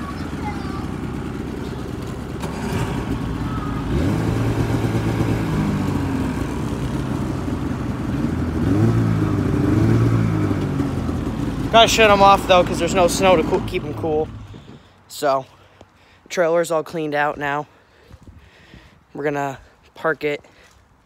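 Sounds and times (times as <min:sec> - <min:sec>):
snowmobile engines revving: 0:00.0 - 0:14.7.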